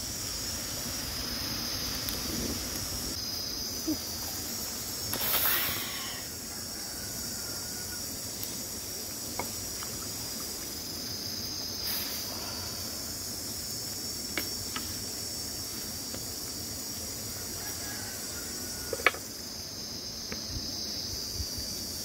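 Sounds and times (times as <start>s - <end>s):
wood fire crackling: 0.0s - 3.3s
insects chorus: 0.0s - 22.0s.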